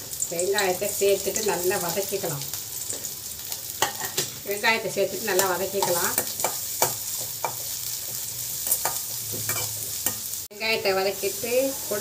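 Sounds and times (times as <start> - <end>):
onions sizzling in hot oil: 0.0 - 12.0
metal ladle scraping a pan: 11.3 - 12.0.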